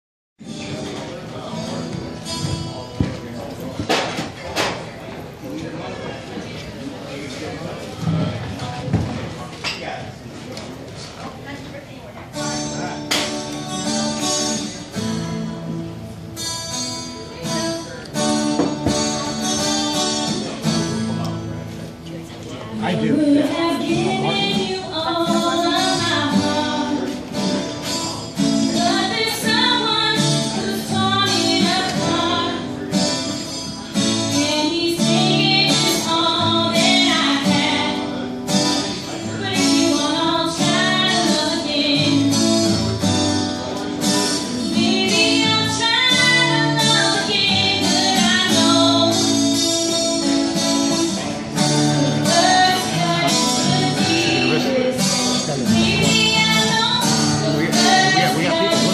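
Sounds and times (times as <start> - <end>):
strummed acoustic guitar: 0.4 - 5.4, 7.7 - 10.0, 12.3 - 58.9
woman singing into a microphone: 23.0 - 27.6, 28.4 - 58.9.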